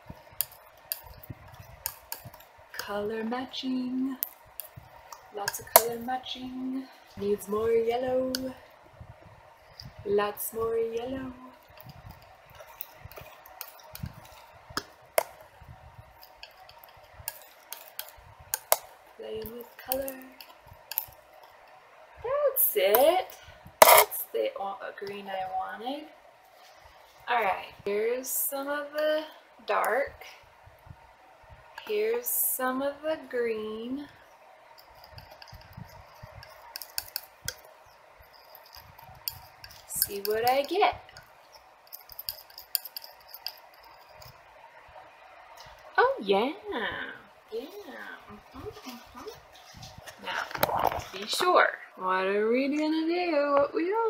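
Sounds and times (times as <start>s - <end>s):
palette knife clicks and scrapes: 34.8s - 44.4s.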